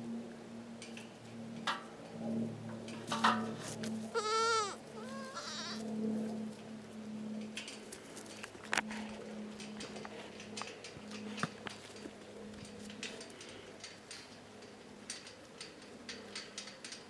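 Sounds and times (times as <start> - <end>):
goat bleating: 3.6 - 5.9.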